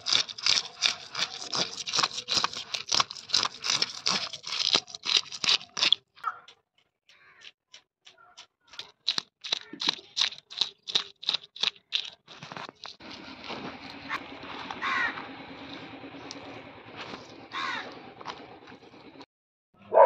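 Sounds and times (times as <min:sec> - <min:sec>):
knife scraping fish scales: 0:00.0 - 0:06.1
crow cawing: 0:07.1 - 0:07.5, 0:14.8 - 0:15.2, 0:17.5 - 0:18.0.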